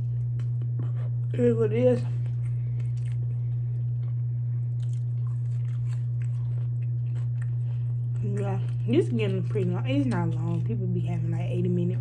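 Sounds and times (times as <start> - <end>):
chewing crunchy fries: 0.0 - 11.8
low hum: 0.0 - 12.0.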